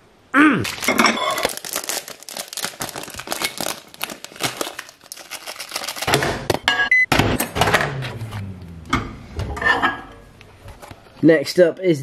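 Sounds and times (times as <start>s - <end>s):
foil wrapper crinkling: 0.6s - 6.2s
microwave button beeps: 6.8s - 7.1s
low hum: 6.9s - 11.0s.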